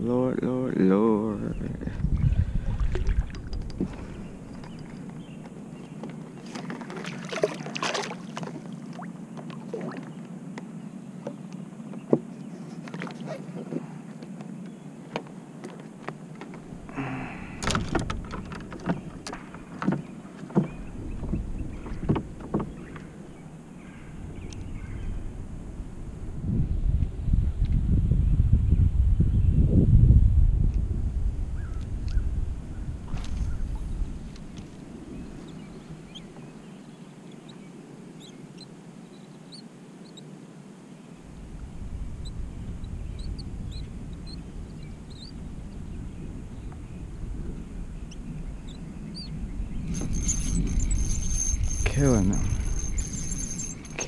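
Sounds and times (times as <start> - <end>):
wind hiss: 0.0 - 6.4, 16.2 - 54.0
wind rumble on microphone: 0.0 - 7.5, 15.5 - 37.0, 41.2 - 54.0
small birds chirping: 3.1 - 7.2, 18.3 - 25.4, 31.6 - 40.3, 40.9 - 54.0
low rumble: 20.7 - 35.9.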